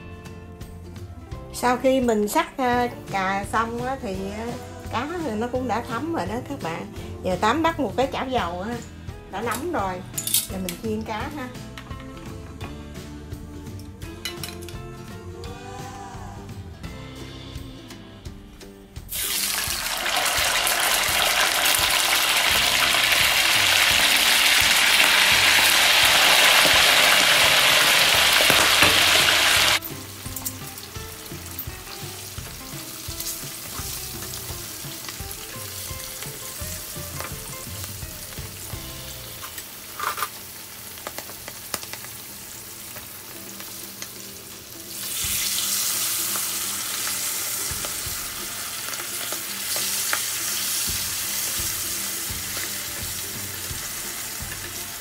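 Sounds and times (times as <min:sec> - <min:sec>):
fish sizzling in hot oil: 0:19.0 - 0:55.0.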